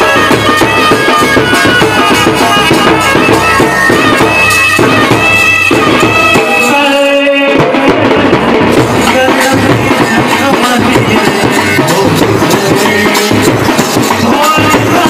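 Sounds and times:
reedy wind instrument melody: 0.0 - 7.4
bass drum and side drums: 0.0 - 15.0.

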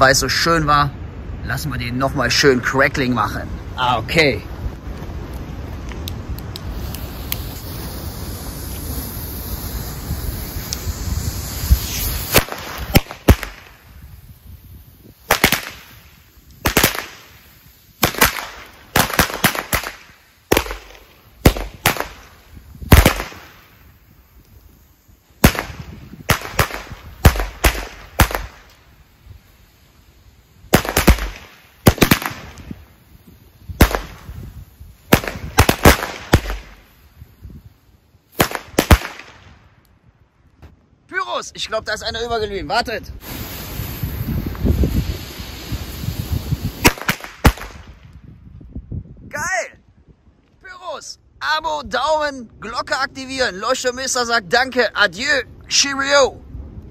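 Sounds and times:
firecracker fuse hissing: 3.6 - 39.8, 40.6 - 48.7
firecrackers banging: 5.1 - 29.1, 30.6 - 37.1, 38.3 - 39.6, 43.2 - 48.1.

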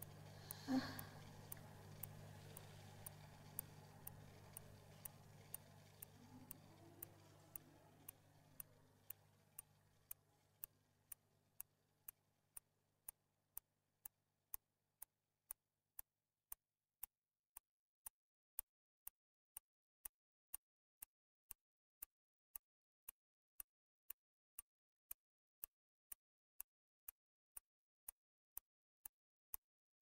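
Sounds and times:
clock ticking: 0.0 - 8.7.

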